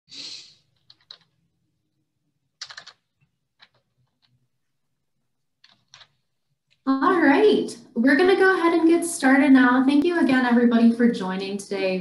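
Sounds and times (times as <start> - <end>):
keyboard keystrokes and clicks: 0.8 - 1.4, 2.6 - 4.4, 5.6 - 6.2.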